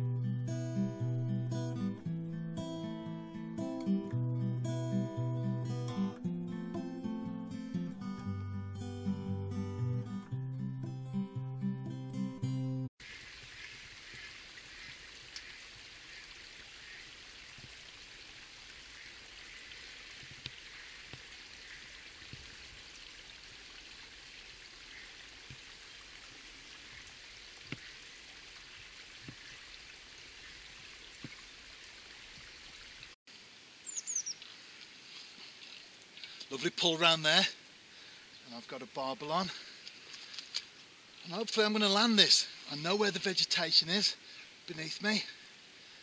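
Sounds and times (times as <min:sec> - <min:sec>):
small ticks: 0:15.3 - 0:15.6.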